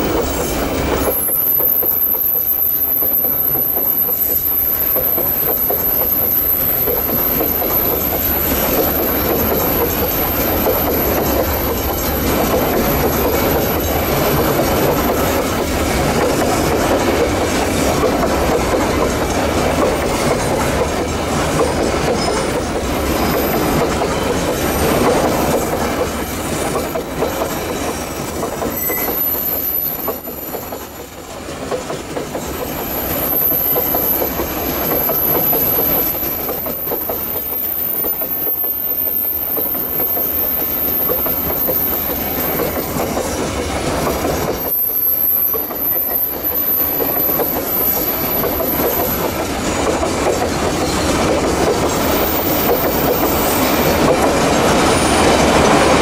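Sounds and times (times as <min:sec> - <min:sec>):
train wheels clattering over rails: 0:00.0 - 0:56.0
high-pitched wheel squeal: 0:28.7 - 0:30.6, 0:32.6 - 0:43.4.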